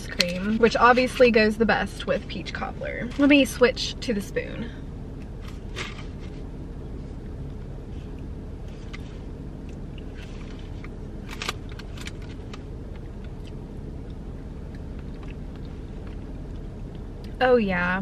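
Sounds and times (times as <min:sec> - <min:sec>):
low car cabin hum: 0:00.0 - 0:18.0
soft eating sounds: 0:05.2 - 0:11.0, 0:11.6 - 0:17.4.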